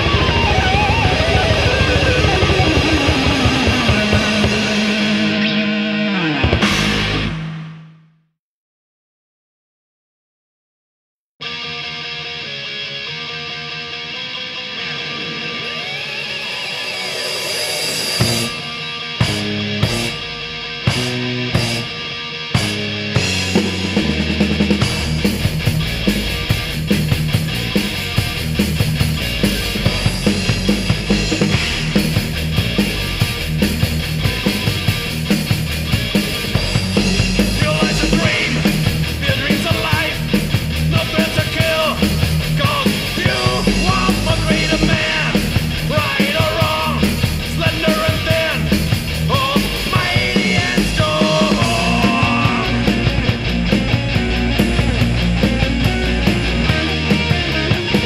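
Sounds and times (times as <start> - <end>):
fast drumming: 0.0 - 5.2, 22.6 - 58.0
thrash metal music: 0.0 - 8.0, 11.4 - 58.0.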